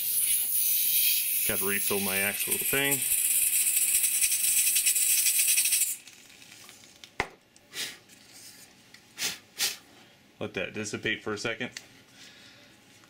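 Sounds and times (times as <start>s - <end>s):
butane gas hissing: 0.0s - 6.5s.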